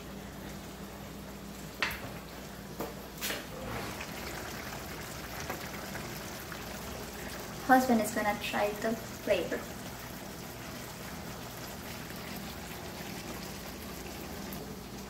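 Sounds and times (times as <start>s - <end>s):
food sizzling in a pan: 3.6s - 14.9s.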